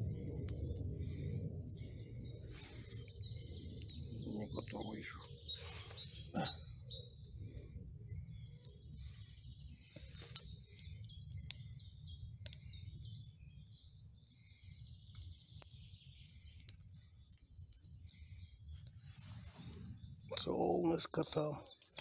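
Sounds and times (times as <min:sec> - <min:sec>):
low rumble: 0:00.0 - 0:05.7
birds chirping: 0:00.0 - 0:22.0
campfire crackling and popping: 0:00.0 - 0:22.0.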